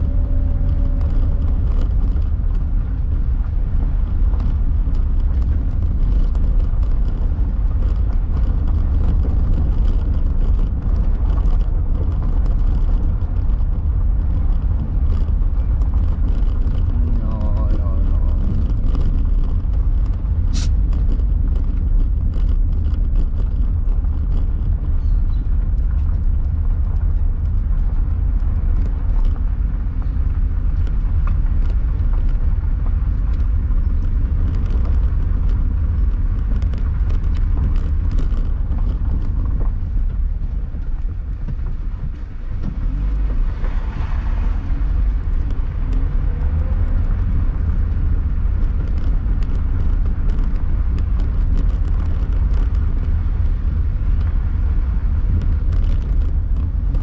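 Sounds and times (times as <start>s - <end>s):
car tyres and engine rumble: 0.0s - 57.0s.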